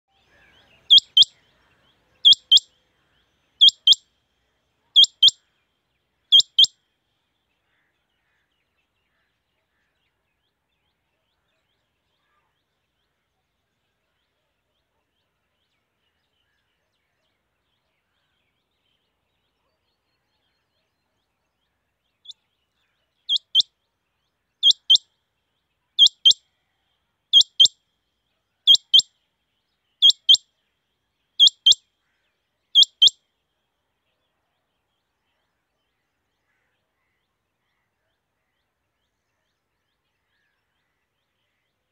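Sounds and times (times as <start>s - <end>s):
quail calling high double notes: 0.9s - 1.3s.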